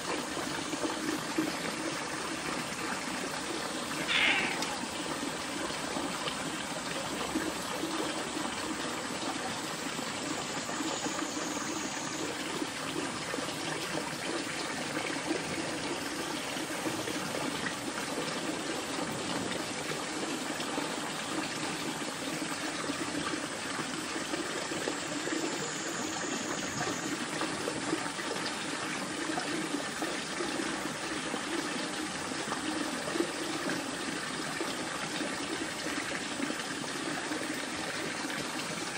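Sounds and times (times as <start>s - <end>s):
flowing water rushing: 0.0s - 38.9s
faint high calls: 3.9s - 5.1s.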